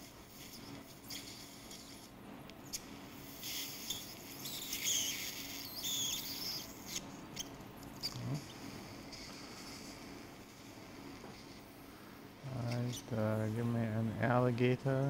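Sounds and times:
suction tube hissing and squeaking: 0:00.0 - 0:10.2, 0:12.6 - 0:13.2.

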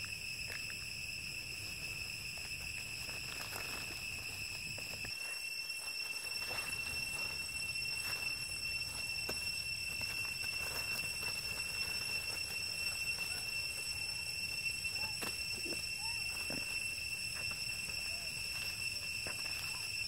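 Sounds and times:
high-pitched whine: 0:00.0 - 0:20.0
monkeys scrambling on dry leaves: 0:00.0 - 0:20.0.

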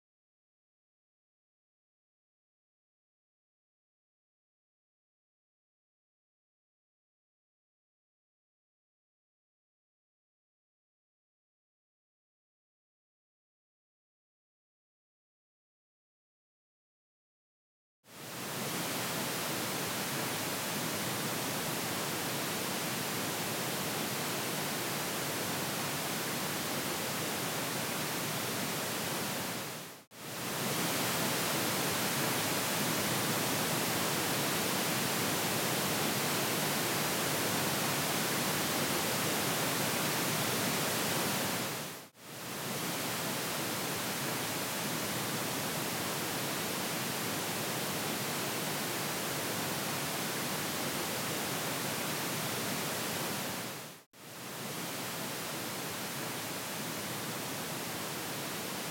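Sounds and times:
pink noise test signal: 0:18.2 - 0:58.9.

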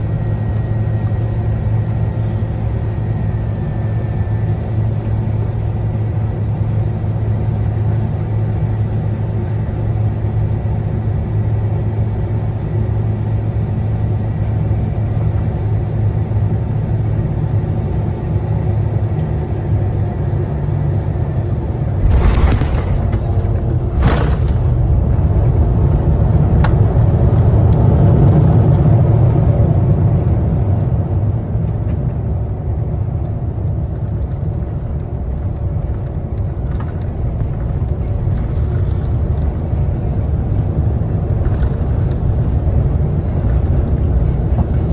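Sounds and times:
aircraft cabin engine drone: 0:00.0 - 0:44.9
low rumble of rollout: 0:18.3 - 0:44.9.

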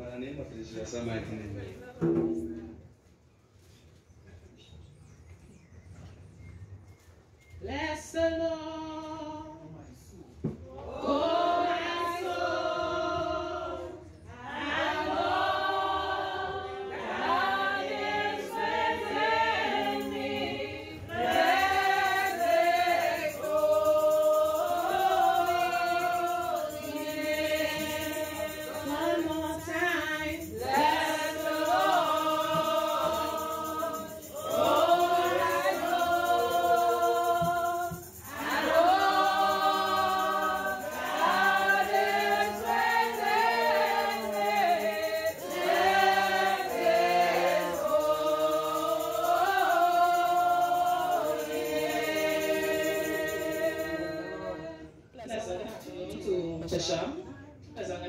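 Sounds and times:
congregation singing: 0:10.4 - 0:55.3.

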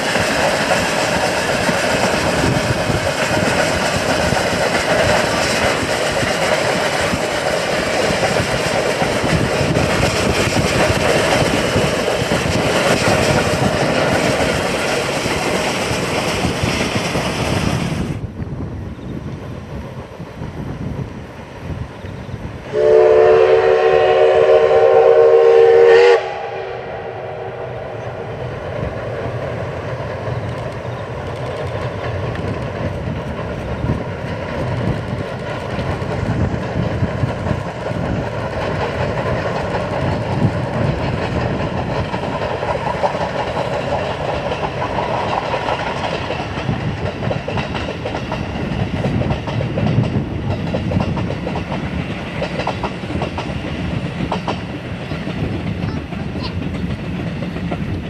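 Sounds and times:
train running by rumbling: 0:00.0 - 0:58.0
steam whistle: 0:22.7 - 0:28.1.

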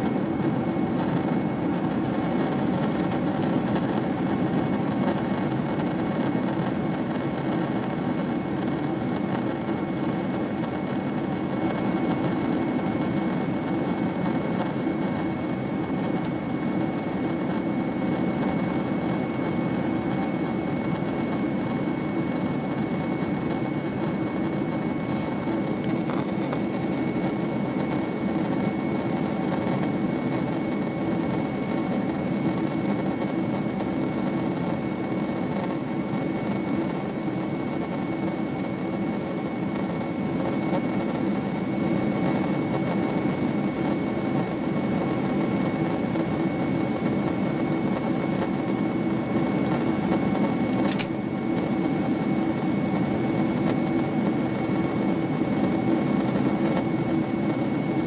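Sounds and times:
jet engine cabin noise: 0:00.0 - 0:58.0
thin high whine: 0:00.0 - 0:58.0.

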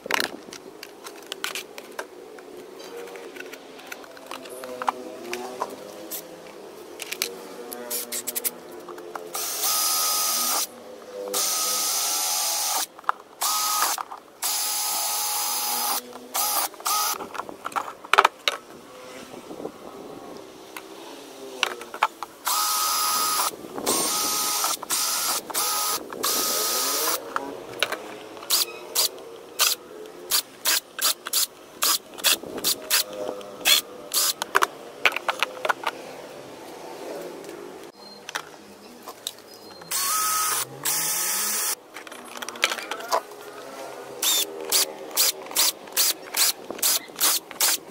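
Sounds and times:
cordless drill whining: 0:09.4 - 0:10.7, 0:11.3 - 0:17.2, 0:22.5 - 0:27.2, 0:39.9 - 0:41.8, 0:44.2 - 0:47.8
drill trigger blips: 0:39.9 - 0:41.8.

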